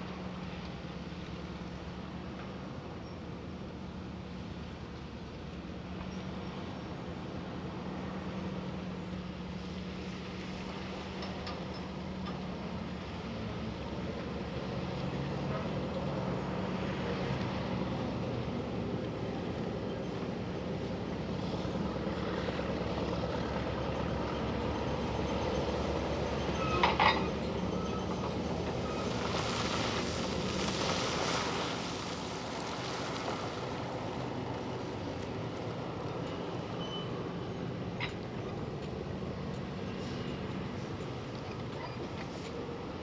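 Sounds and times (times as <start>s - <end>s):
rock and dirt pouring: 29.0s - 33.7s.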